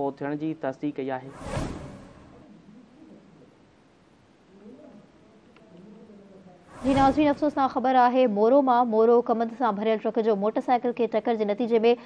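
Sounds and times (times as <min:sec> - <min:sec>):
faint even hiss: 0:00.0 - 0:07.9
swoosh transition effect: 0:01.3 - 0:02.5, 0:06.7 - 0:07.5
faint low murmur: 0:01.8 - 0:07.6.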